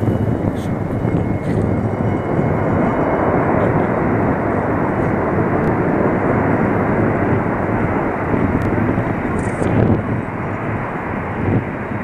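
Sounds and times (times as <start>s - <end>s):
jet engines roaring: 0.0s - 12.0s.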